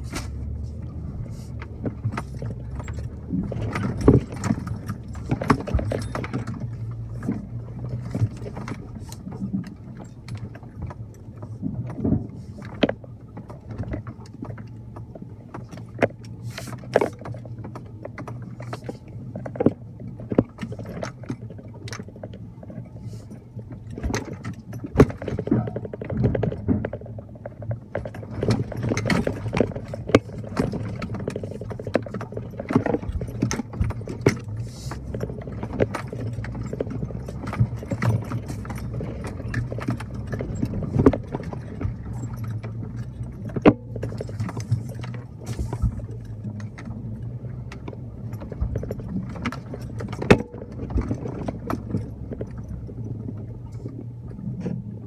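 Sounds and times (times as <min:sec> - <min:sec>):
low engine hum: 0:00.0 - 0:55.0
knocks clinks and rattles: 0:01.8 - 0:10.6, 0:23.8 - 0:54.7.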